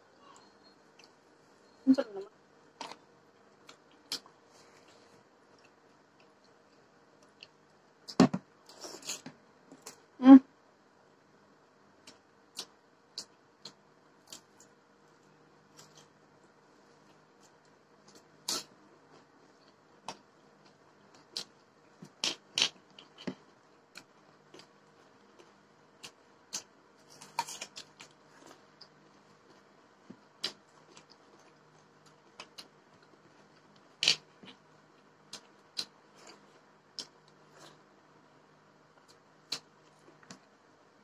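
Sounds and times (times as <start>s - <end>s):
chewing and eating with hands: 17.1s - 37.8s.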